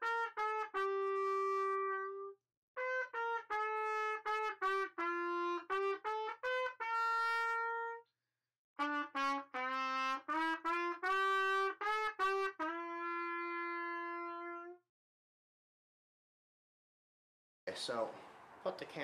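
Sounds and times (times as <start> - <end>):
trumpet playing short notes: 0.0 - 8.1, 8.8 - 14.8.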